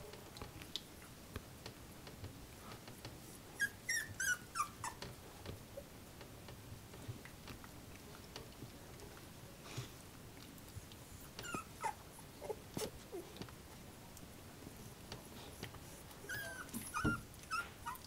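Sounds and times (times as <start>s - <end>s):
puppies scuffling: 1.4s - 18.0s
puppy squeaking and whining: 3.6s - 5.0s, 11.2s - 13.2s, 16.2s - 18.0s.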